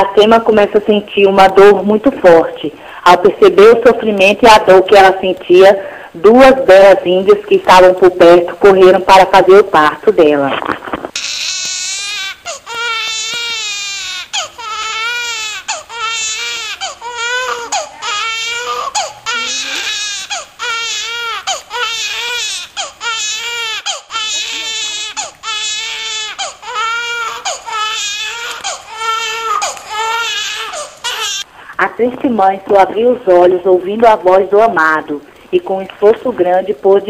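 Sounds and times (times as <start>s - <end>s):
baby crying: 11.2s - 31.5s.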